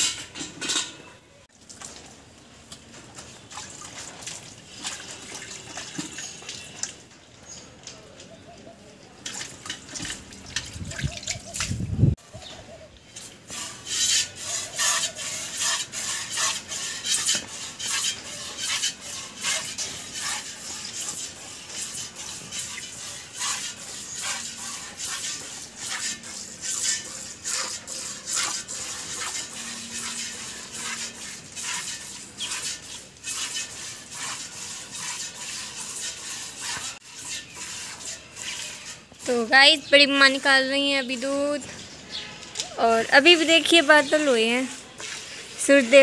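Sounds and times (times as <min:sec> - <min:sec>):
milk squirting into steel bucket: 0:13.2 - 0:39.4.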